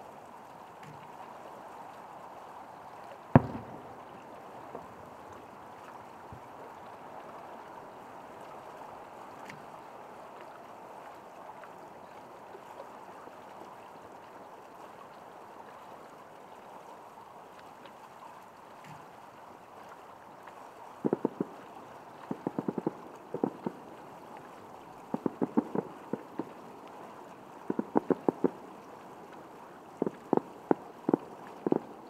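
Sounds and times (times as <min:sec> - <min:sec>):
steady background hiss: 0:00.0 - 0:32.0
firework boom with rumble: 0:03.4 - 0:04.2
faint thumps: 0:03.4 - 0:04.9.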